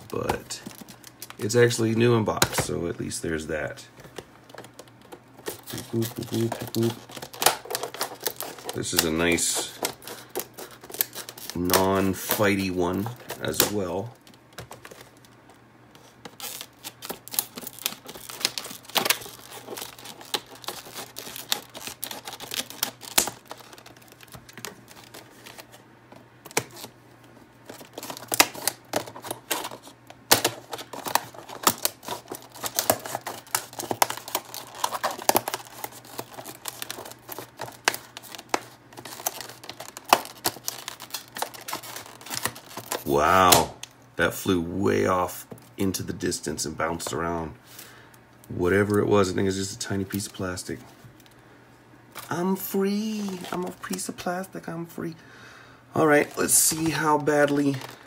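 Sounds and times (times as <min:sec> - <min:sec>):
plastic crackling: 0:00.0 - 0:02.9, 0:03.6 - 0:44.0, 0:52.1 - 0:54.3, 0:55.9 - 0:58.0
scissors snipping plastic: 0:27.7 - 0:43.7.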